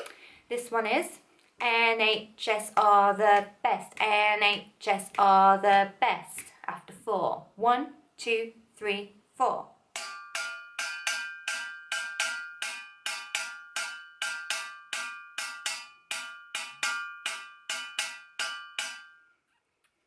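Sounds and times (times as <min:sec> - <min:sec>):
spoon hitting metal saucepan: 0:10.0 - 0:19.3.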